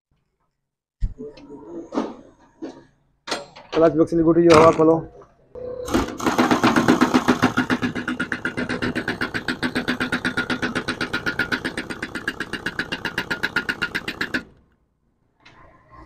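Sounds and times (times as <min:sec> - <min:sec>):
impact wrench rattling: 0:06.2 - 0:14.8.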